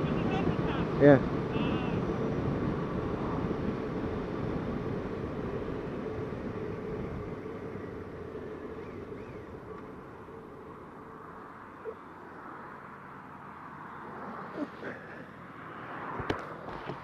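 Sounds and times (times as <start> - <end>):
wind rush: 0.1 - 11.2.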